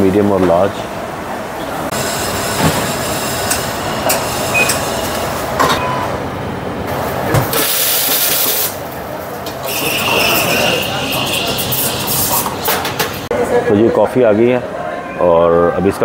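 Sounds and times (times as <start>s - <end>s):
espresso machine steam hiss: 7.6s - 8.8s
cups clinking: 9.4s - 13.2s.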